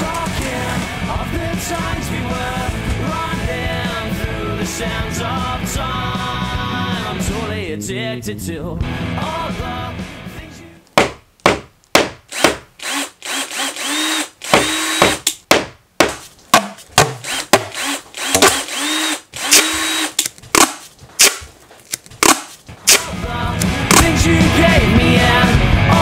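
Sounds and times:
small electric motor whining: 0:17.2 - 0:20.2.

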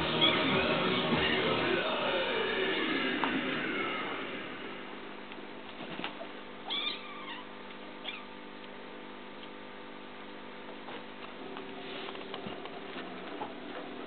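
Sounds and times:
cat meowing: 0:06.6 - 0:08.3
cats scuffling: 0:10.7 - 0:14.0.

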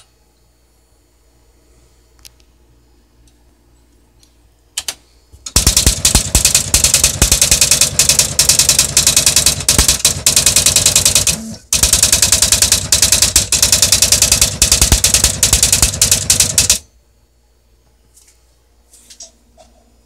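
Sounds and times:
typewriter character strikes: 0:05.5 - 0:16.8.

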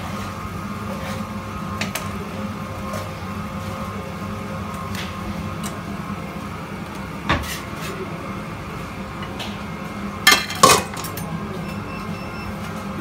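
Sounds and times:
kitchen hum: 0:00.0 - 0:13.0
metal pans clanking: 0:10.3 - 0:11.3.

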